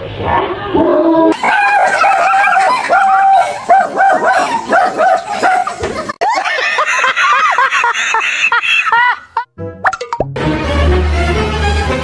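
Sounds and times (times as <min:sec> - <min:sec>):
dog barking: 0:01.4 - 0:05.8.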